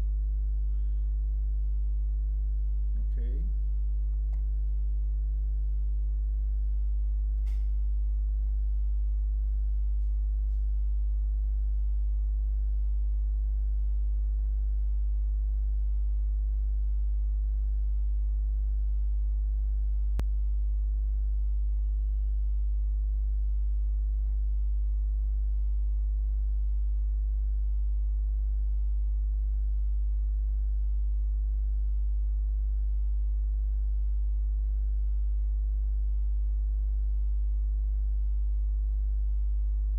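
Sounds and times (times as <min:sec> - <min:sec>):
electrical mains hum: 0:00.0 - 0:39.9
faint click: 0:07.4 - 0:07.8.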